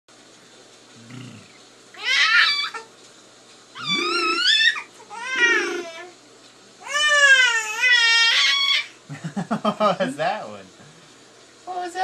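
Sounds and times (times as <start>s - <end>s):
baby squealing: 2.0s - 2.9s, 3.8s - 6.0s, 6.9s - 9.0s.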